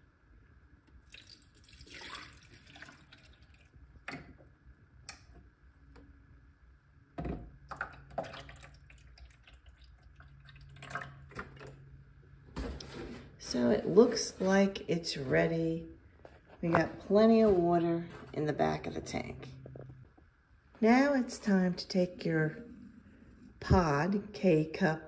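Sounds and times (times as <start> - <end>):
water pouring and splashing: 1.0 - 4.4, 7.7 - 11.8.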